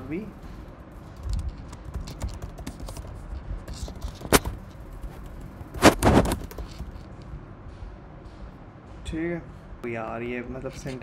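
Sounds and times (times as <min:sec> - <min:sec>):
keyboard key clicks: 0:01.3 - 0:03.1
louder keyboard clack: 0:01.3 - 0:07.0.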